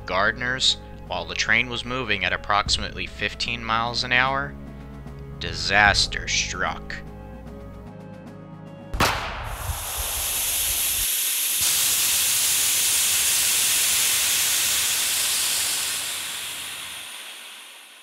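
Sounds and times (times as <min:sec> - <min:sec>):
sudden bang: 0:09.0 - 0:11.0
steam hissing: 0:09.3 - 0:18.0.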